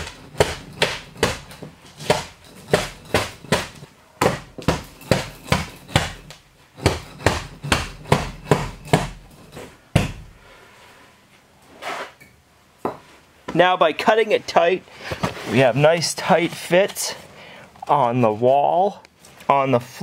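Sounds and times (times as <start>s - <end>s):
wooden mallet knocking foam board: 0.0s - 9.2s, 9.9s - 10.3s.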